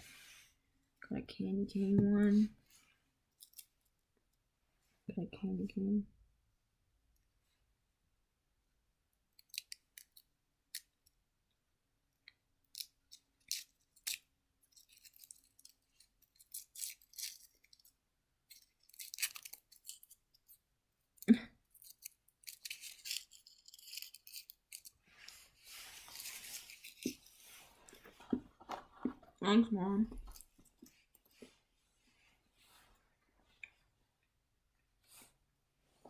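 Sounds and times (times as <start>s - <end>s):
foil wrapper crinkling: 18.5s - 20.2s, 21.8s - 24.9s.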